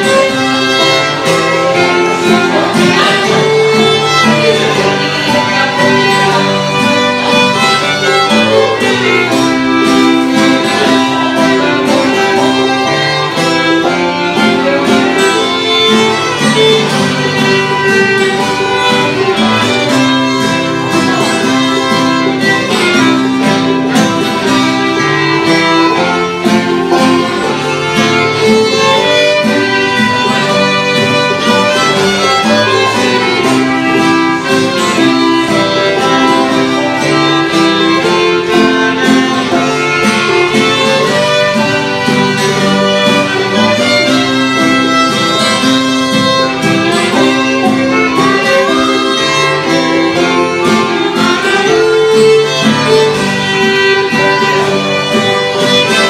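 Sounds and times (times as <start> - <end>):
fiddles playing a waltz: 0.0 - 56.0
strummed acoustic guitar: 0.0 - 56.0.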